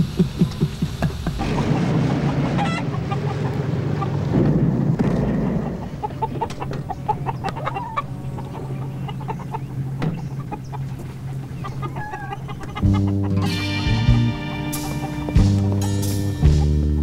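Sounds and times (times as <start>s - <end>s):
chickens clucking: 0.0s - 17.0s
low steady hum: 0.0s - 17.0s
jazzy music with brass: 12.9s - 17.0s.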